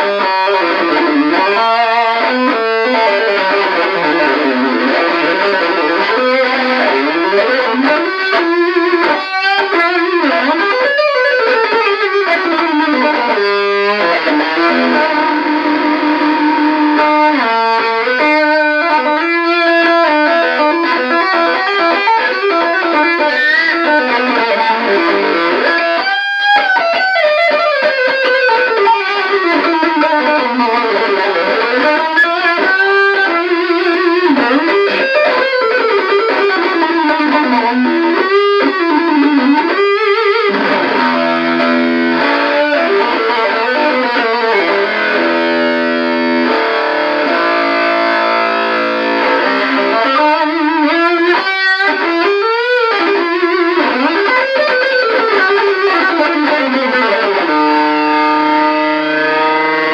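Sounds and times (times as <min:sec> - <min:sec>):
fuzz electric guitar: 0:00.0 - 0:59.9.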